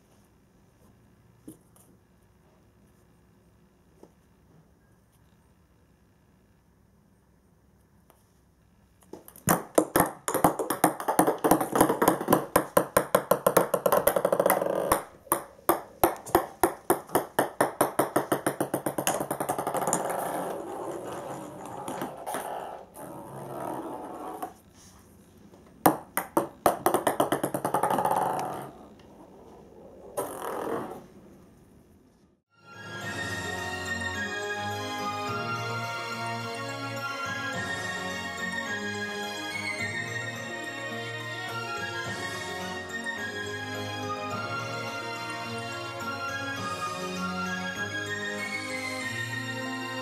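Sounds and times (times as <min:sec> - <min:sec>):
ping-pong balls bouncing on wooden floor: 0:09.1 - 0:24.6, 0:25.8 - 0:29.1, 0:30.2 - 0:31.0.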